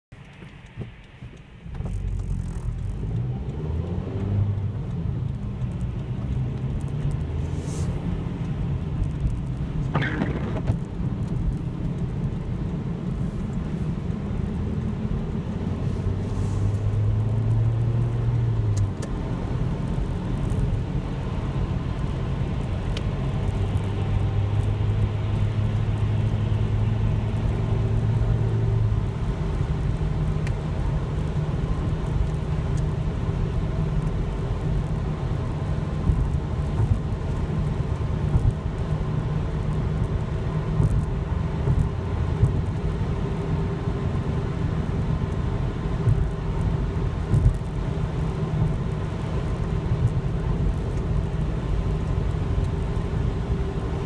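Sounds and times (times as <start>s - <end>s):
car engine and tyre rumble: 0.0s - 54.0s
wet road hiss: 7.5s - 8.0s, 15.9s - 16.9s.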